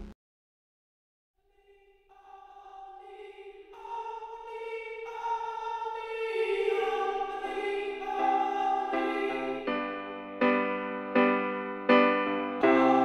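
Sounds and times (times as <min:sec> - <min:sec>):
music with layered chords: 0:09.1 - 0:13.0.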